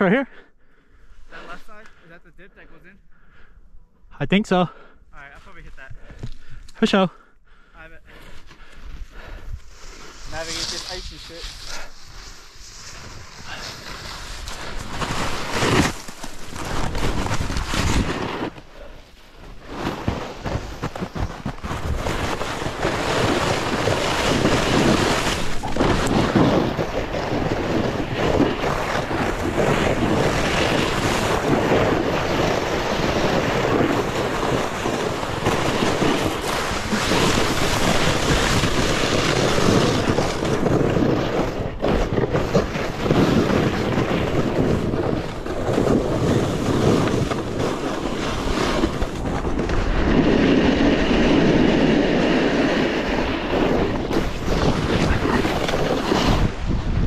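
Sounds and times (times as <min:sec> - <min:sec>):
snowboard carving through snow: 0:08.0 - 0:57.0
wind rushing over microphone: 0:19.6 - 0:57.0.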